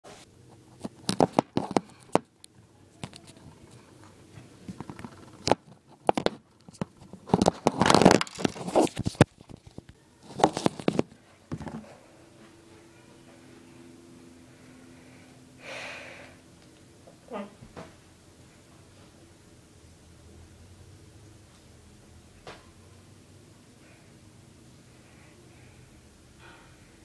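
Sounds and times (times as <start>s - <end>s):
hands handling recording device: 0.8s - 2.3s, 3.0s - 12.0s.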